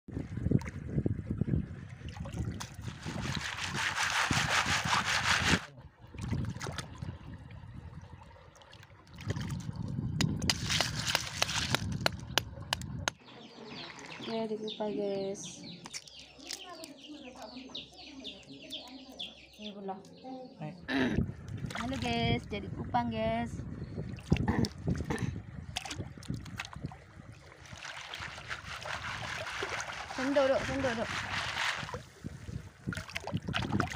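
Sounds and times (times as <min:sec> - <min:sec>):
water splashing and sloshing: 0:00.1 - 0:17.4, 0:21.3 - 0:33.9.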